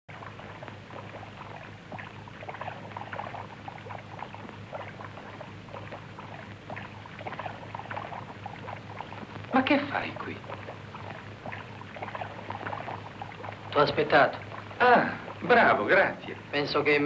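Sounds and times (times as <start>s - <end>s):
faint film ticks and rustles: 0.1s - 17.0s
steady low hum: 0.1s - 17.0s.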